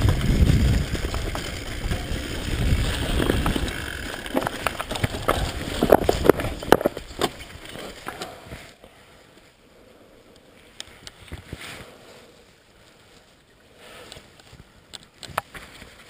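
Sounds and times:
mountain bike rattling on trail: 0:00.0 - 0:08.8
bike clicks: 0:00.0 - 0:09.5, 0:10.3 - 0:11.9, 0:14.0 - 0:16.0.

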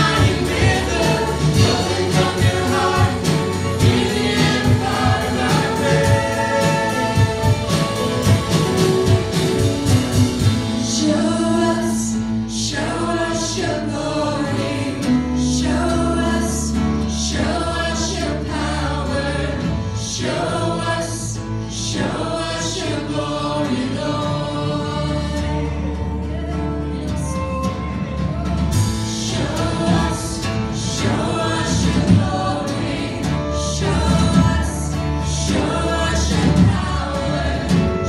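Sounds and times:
steady drumbeat: 0:00.0 - 0:11.2, 0:28.0 - 0:38.0
people singing: 0:00.0 - 0:38.0
worship band playing: 0:00.0 - 0:38.0.

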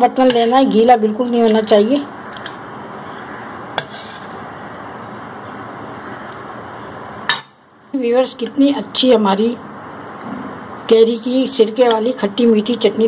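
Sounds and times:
spatula scraping metal pan: 0:03.8 - 0:04.4.

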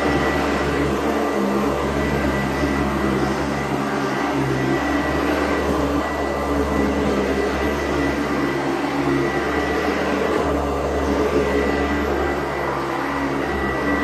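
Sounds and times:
vacuum cleaner running: 0:00.0 - 0:14.0.

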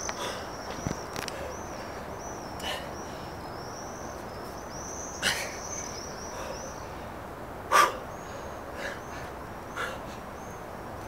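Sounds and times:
small birds twittering: 0:00.0 - 0:11.0
man breathing forcefully: 0:00.2 - 0:00.6.

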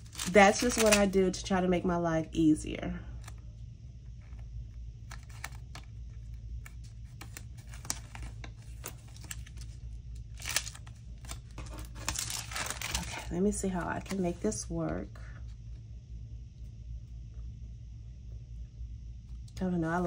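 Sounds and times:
paper crackles and clicks: 0:00.0 - 0:01.2, 0:05.0 - 0:14.2
stickers peeling: 0:00.0 - 0:01.2, 0:06.6 - 0:14.2
low hum: 0:00.0 - 0:20.0.

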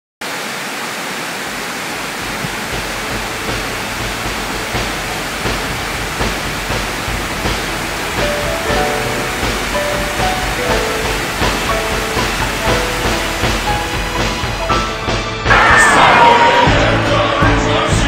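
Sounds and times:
waterfall rushing: 0:00.2 - 0:18.0
music with soft beat: 0:02.8 - 0:15.5.

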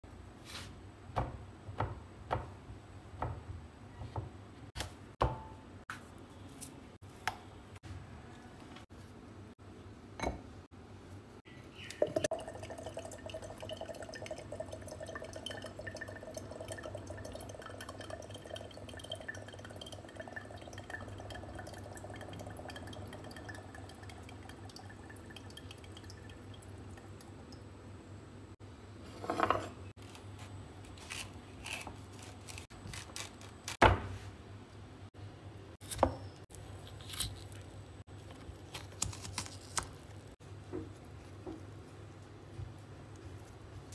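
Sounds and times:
water trickling into glass bowl: 0:11.9 - 0:27.8.

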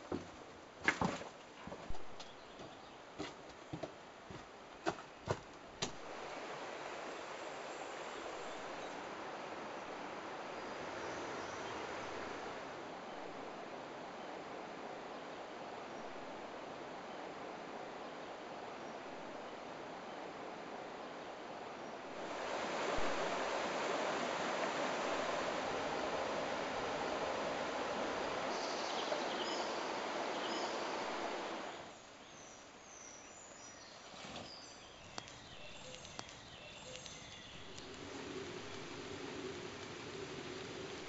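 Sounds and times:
river water flowing: 0:05.6 - 0:32.8, 0:34.6 - 0:41.0
river rushing through rocky gorge: 0:22.1 - 0:31.8
small birds chirping: 0:28.3 - 0:41.0.

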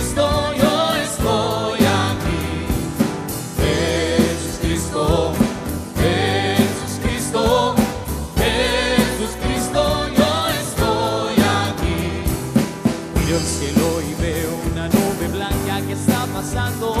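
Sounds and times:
band playing worship song: 0:00.0 - 0:17.0.

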